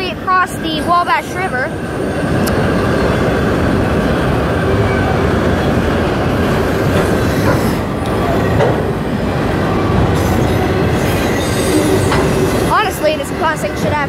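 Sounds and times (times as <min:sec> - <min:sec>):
train wheels rumbling on rail: 0:00.0 - 0:14.0
wheels squealing: 0:09.6 - 0:12.8.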